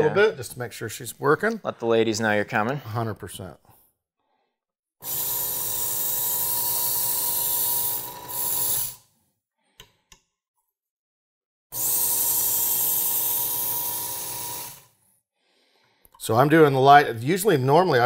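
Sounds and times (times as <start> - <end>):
belt sharpener motor whine: 5.0 - 9.0, 11.8 - 14.9.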